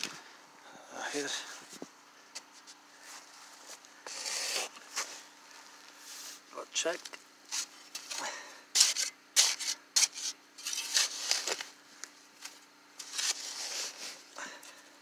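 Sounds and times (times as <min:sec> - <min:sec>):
shovel digging into soil: 0:04.1 - 0:05.0, 0:07.5 - 0:11.7, 0:13.0 - 0:14.2.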